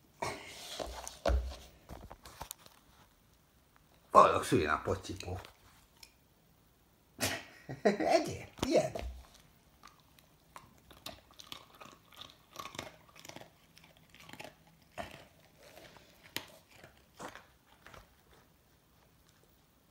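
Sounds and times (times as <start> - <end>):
dog chewing and crunching cake: 8.6 - 19.9.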